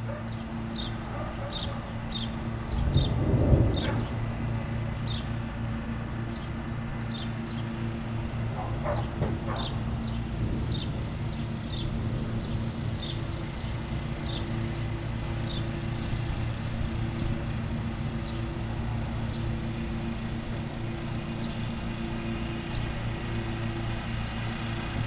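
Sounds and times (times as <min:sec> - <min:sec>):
birds chirping: 0:00.0 - 0:05.4, 0:06.3 - 0:07.9, 0:08.6 - 0:16.4, 0:17.1 - 0:20.1, 0:21.3 - 0:24.6
steady low hum: 0:00.0 - 0:25.0.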